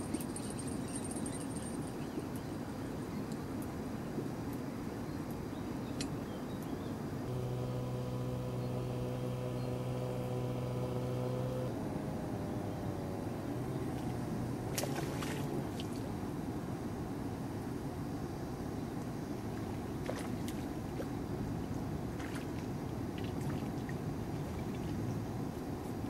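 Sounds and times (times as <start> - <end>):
engine hum: 7.1 - 16.4
fainter wavering hum: 7.2 - 15.9
sharp splashes: 14.7 - 16.1.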